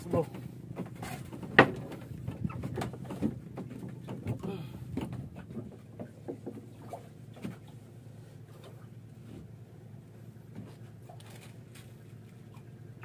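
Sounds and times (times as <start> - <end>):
low hum: 0.0 - 13.0
water slapping hull: 0.0 - 13.0
knocks on wooden boat: 0.8 - 6.7.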